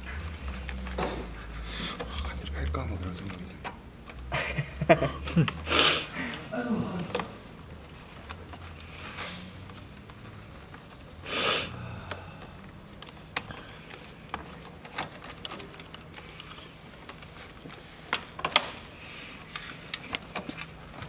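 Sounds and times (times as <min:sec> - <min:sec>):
hands handling a cable clicking: 0:12.1 - 0:21.0.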